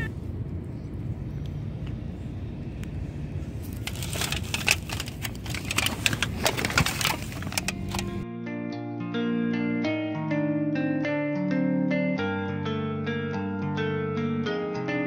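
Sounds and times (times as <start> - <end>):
low steady rumble: 0.0 - 8.2
crackling and crunching: 3.6 - 8.2
plucked guitar music: 7.6 - 15.0.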